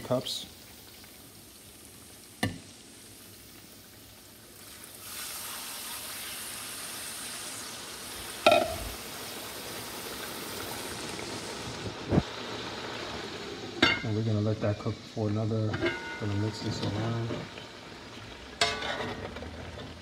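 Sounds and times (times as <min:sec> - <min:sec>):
water sizzling in hot pot: 0:00.0 - 0:20.0
metal lid clanking onto pot: 0:08.5 - 0:08.9, 0:15.7 - 0:17.0, 0:18.6 - 0:19.3.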